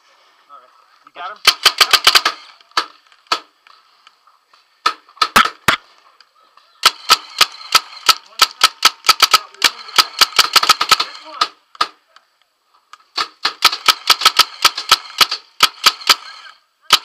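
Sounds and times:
paintball markers firing: 1.4 - 3.5, 6.8 - 12.0, 13.1 - 16.3.

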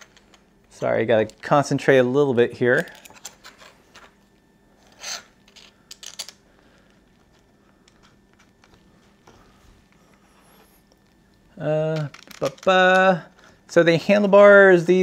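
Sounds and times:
packaging rustling and clicking: 12.0 - 12.7.

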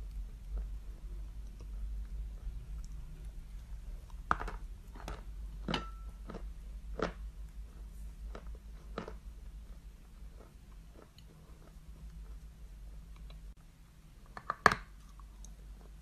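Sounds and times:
crunchy chewing: 0.0 - 13.5.

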